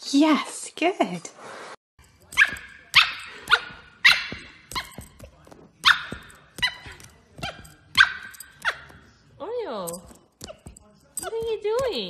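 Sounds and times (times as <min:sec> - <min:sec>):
puppy yipping barks: 0:02.3 - 0:05.2, 0:05.8 - 0:09.1.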